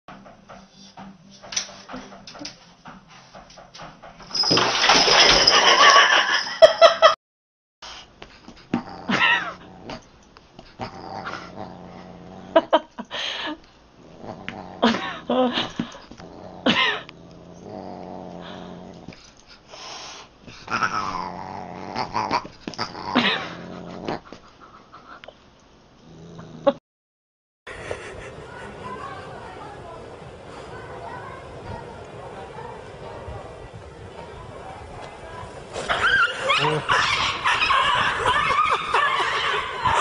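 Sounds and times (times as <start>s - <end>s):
growls: 8.7s - 10.1s, 10.7s - 12.9s, 14.0s - 19.2s, 20.6s - 24.4s, 26.0s - 26.8s, 35.4s - 40.0s
drawn-out yowls: 35.9s - 40.0s.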